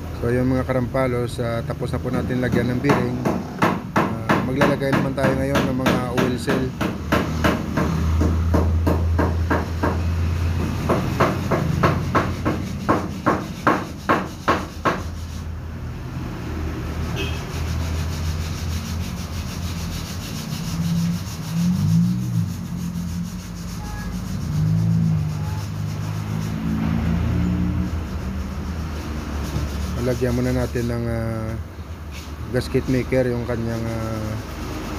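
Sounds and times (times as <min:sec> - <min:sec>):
hammer tapping: 0:02.3 - 0:15.1.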